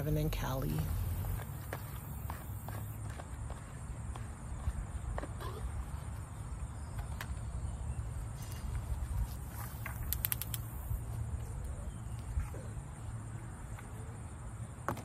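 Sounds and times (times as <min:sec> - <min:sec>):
insects chirring: 0:00.1 - 0:15.0
sharp clicks: 0:10.0 - 0:10.8.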